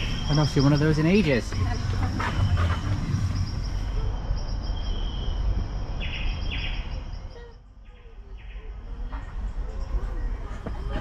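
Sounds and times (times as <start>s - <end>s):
steady low rumble: 0.0s - 7.8s
birds chirping: 0.0s - 10.6s.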